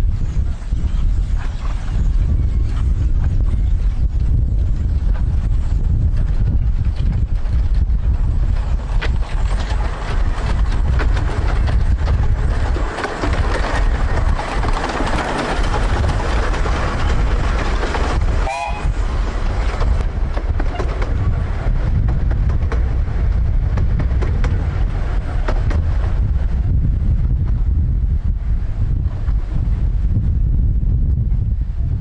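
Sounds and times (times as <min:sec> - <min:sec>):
heavy low rumble: 0:00.0 - 0:32.0
miniature train wheels clicking: 0:08.5 - 0:18.3
brief high pitched sound: 0:18.5 - 0:19.0.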